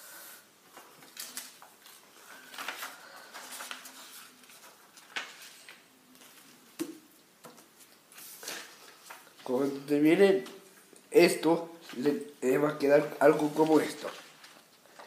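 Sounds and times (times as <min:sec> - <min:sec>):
paper crinkling and rustling: 0:00.7 - 0:06.7, 0:07.6 - 0:10.6, 0:12.9 - 0:15.0.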